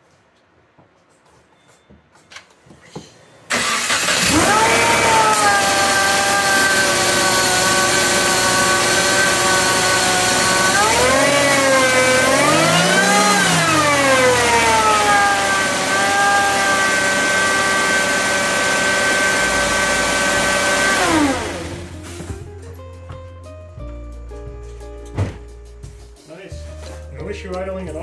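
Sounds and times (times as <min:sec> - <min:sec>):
car engine idling and revving: 0:03.5 - 0:22.3.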